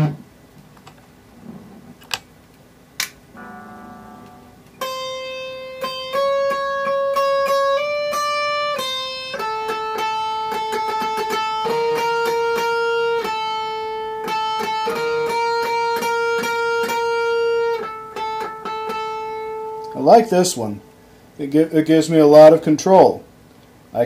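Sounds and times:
distorted electric guitar notes: 3.3 - 20.0.

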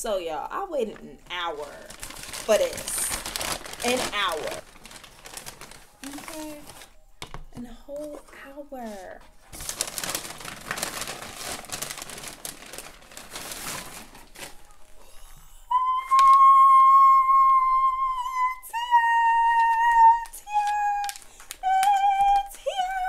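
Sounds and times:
paper bag crinkling: 0.7 - 7.0, 8.0 - 15.0, 19.4 - 23.0.

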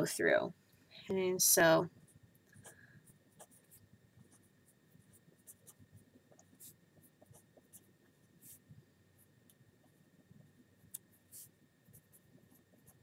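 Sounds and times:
marker scratching on paper: 2.6 - 8.7, 11.2 - 13.0.

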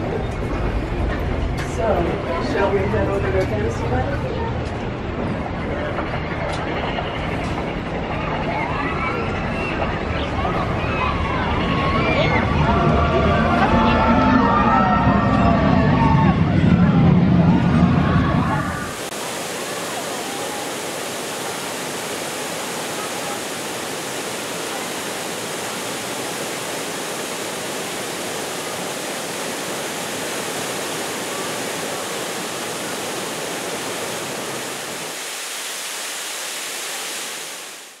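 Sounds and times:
waterfall rushing: 18.8 - 38.0.

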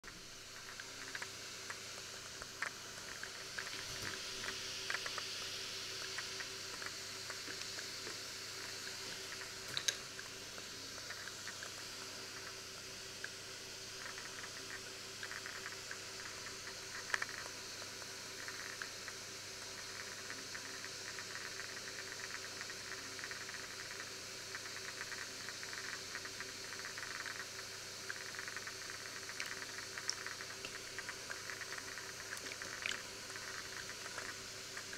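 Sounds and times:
faint steady hum: 0.0 - 34.9
milk pouring into flour: 24.8 - 34.9.

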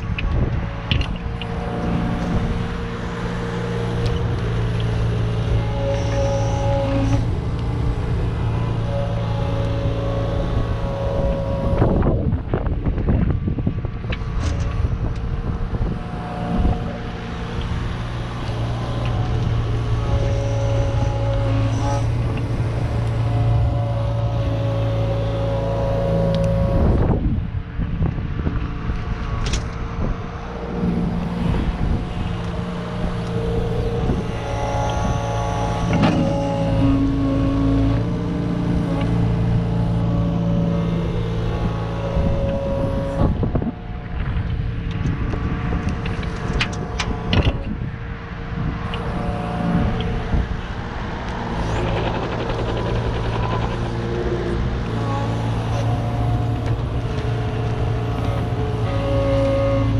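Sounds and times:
diesel engine running: 0.0 - 59.9
hydraulic whine: 0.0 - 59.9.

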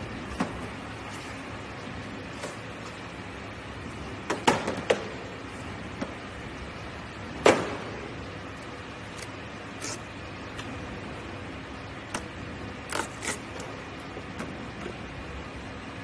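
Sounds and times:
faint machine hum: 0.0 - 16.0.

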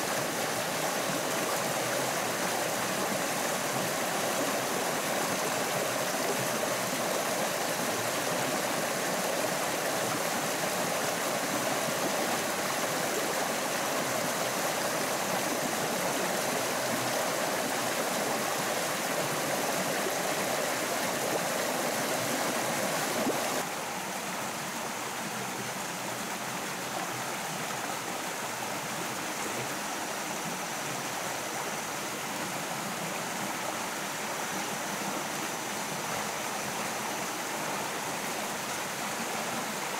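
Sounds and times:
stream flowing over stones: 0.0 - 39.9.

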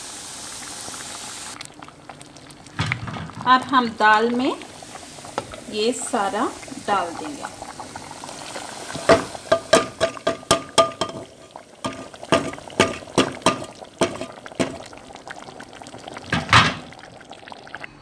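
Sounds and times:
spoon clinking against metal pot: 9.1 - 14.7.

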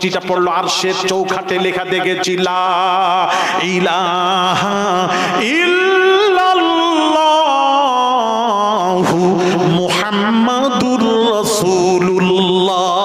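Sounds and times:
man chanting: 0.0 - 13.0.

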